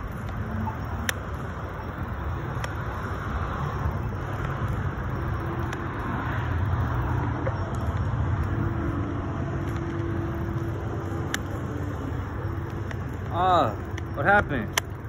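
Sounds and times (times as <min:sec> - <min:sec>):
wind and road rumble: 0:00.0 - 0:15.0.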